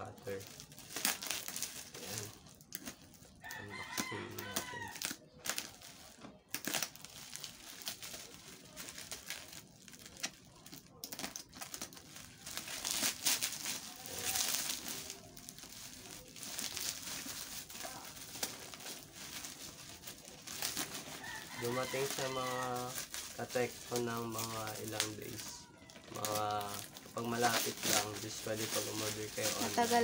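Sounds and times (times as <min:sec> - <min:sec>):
bubble wrap crinkling: 0:00.0 - 0:30.0.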